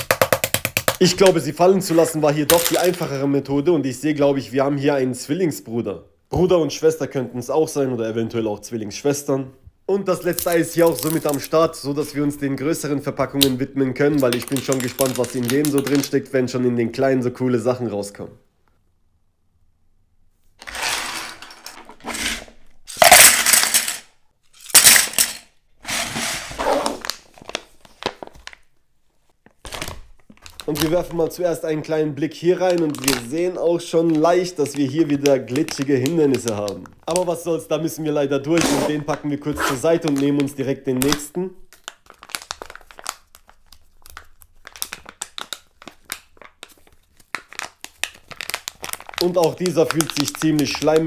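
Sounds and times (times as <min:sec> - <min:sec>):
plastic foil packet crinkling: 0:01.0 - 0:03.2, 0:10.2 - 0:11.7, 0:14.0 - 0:16.2, 0:26.9 - 0:28.7, 0:29.4 - 0:31.6, 0:32.4 - 0:37.4, 0:38.8 - 0:51.0
plastic toy pieces clattering: 0:02.5 - 0:03.1, 0:20.6 - 0:25.5.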